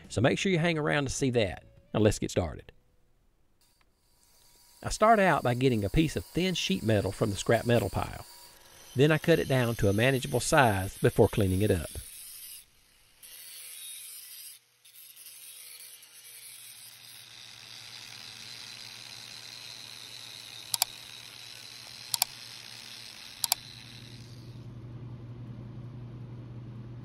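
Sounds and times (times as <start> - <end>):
angle grinder on sheet steel: 3.6 - 24.6.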